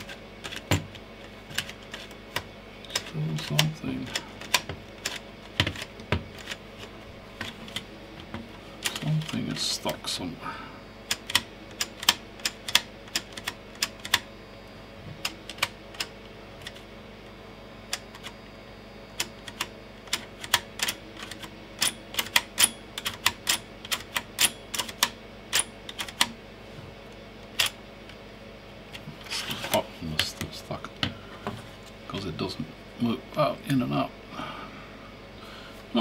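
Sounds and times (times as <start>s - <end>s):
floppy drive mechanism clicking: 0.0s - 10.1s, 11.0s - 14.3s, 15.1s - 16.9s, 19.1s - 26.4s, 27.0s - 28.2s.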